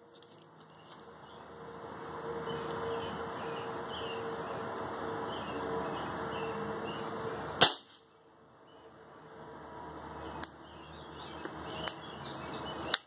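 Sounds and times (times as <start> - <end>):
birds chirping: 0.6 - 7.4, 10.1 - 13.0
air rifle shot: 7.6 - 8.0.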